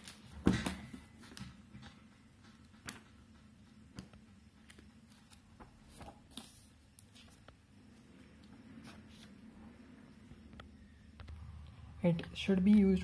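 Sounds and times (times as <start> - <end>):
book pages turning: 0.0 - 0.3, 4.0 - 7.6, 8.3 - 9.4.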